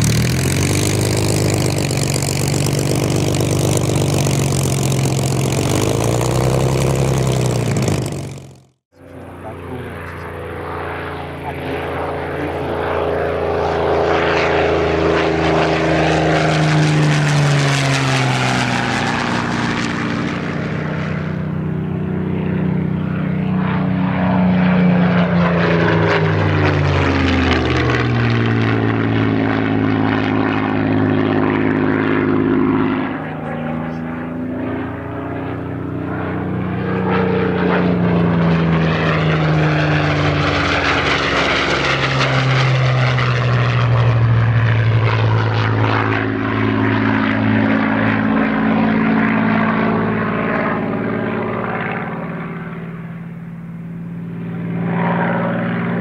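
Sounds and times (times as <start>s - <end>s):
propeller plane engine passing: 0.0s - 56.0s.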